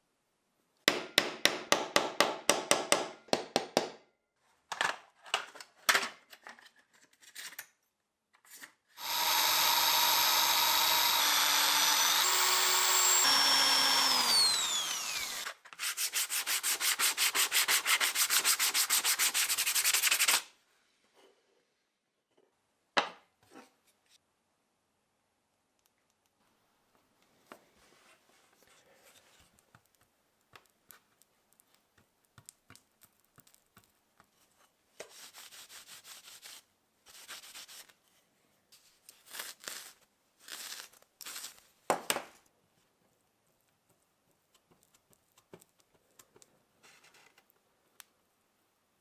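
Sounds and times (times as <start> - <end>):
electric drill whining: 9.0 - 15.6.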